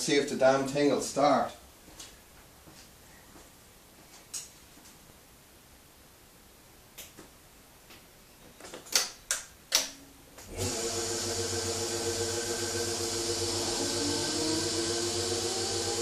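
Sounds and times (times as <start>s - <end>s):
electric hum and hiss: 0.0s - 10.6s.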